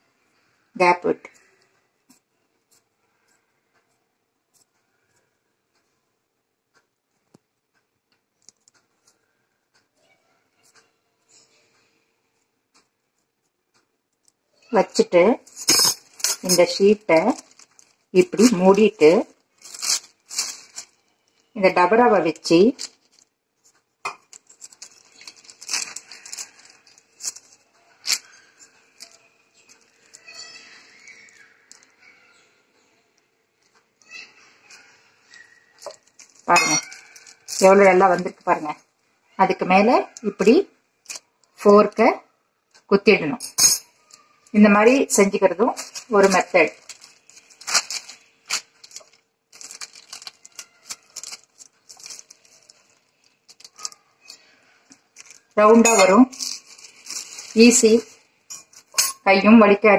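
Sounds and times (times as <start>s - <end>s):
plastic sheet crinkling: 15.4s - 32.1s, 34.6s - 38.7s, 44.0s - 59.0s.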